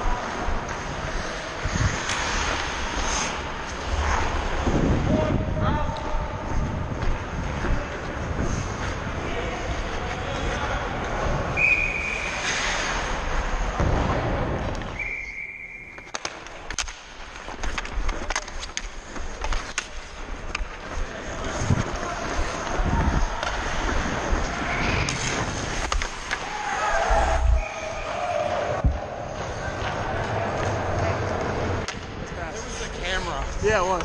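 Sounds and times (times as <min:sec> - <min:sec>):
skates scraping on ice: 0:00.0 - 0:34.0
wind on microphone: 0:04.2 - 0:09.4
sticks and puck clicking on ice: 0:15.9 - 0:26.8.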